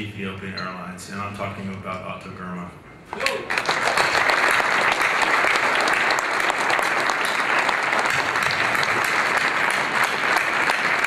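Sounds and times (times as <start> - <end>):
large audience applauding: 3.2 - 11.0.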